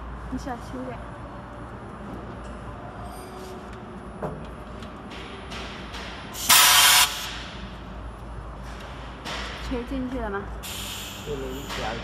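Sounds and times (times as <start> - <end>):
compressed air hiss: 6.4 - 7.3, 10.6 - 11.8.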